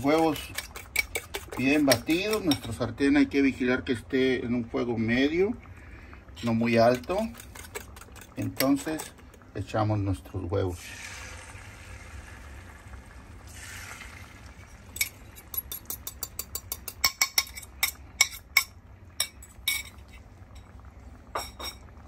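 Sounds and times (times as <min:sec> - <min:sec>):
egg hissing in hot pan: 0:00.0 - 0:02.4, 0:10.7 - 0:15.3
fork clinking against ceramic bowl: 0:00.1 - 0:02.7, 0:07.0 - 0:09.2, 0:15.0 - 0:18.6.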